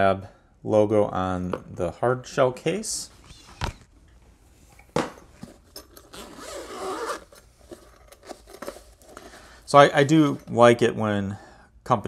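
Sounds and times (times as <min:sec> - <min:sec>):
zipper rasping: 0:05.9 - 0:08.6.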